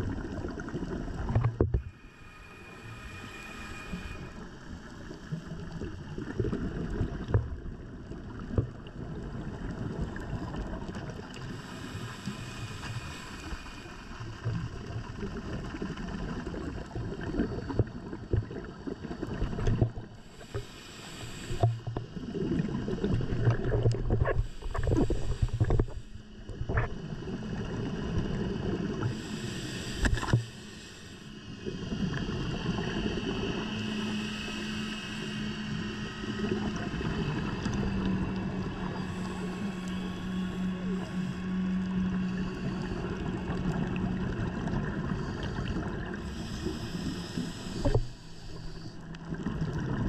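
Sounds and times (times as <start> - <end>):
steady low hum: 0.0 - 16.6, 17.2 - 50.0
diver breathing through regulator: 1.3 - 5.9, 11.2 - 15.3, 19.1 - 49.4.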